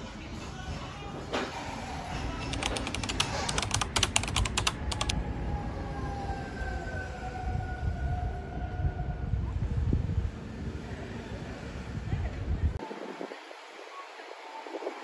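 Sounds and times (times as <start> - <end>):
street traffic rumble: 1.8 - 13.8
rapid sharp clicks: 2.5 - 5.2.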